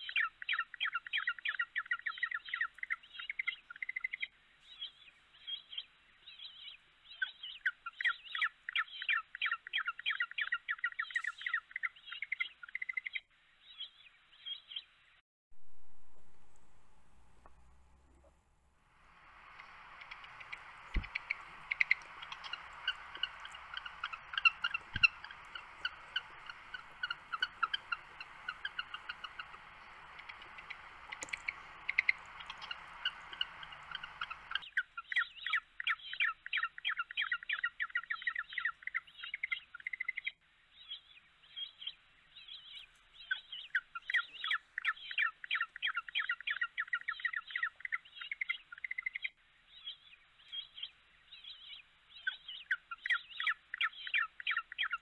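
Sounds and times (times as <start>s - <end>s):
steady background hiss: 0.0s - 9.8s, 13.3s - 55.0s
penguins chirping: 19.3s - 35.6s.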